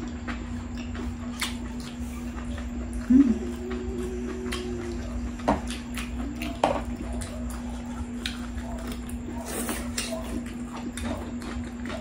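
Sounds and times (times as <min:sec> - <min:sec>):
chewing and mouth clicks: 0:00.0 - 0:12.0
low hum: 0:00.8 - 0:09.4.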